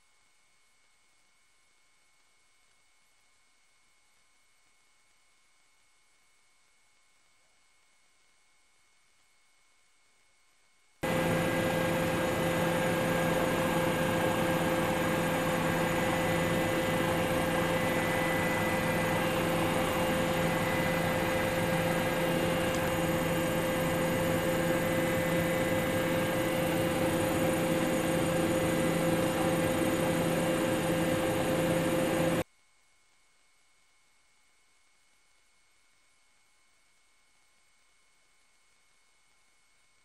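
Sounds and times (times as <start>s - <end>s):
helicopter engine and rotor: 11.0s - 32.4s.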